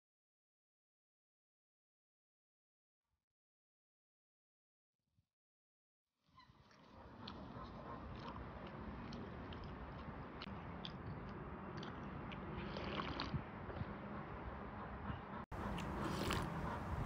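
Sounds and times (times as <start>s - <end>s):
chewing mouth sounds: 7.2s - 14.0s, 15.6s - 17.0s
sipping from a glass bowl: 12.5s - 13.4s, 15.7s - 17.0s.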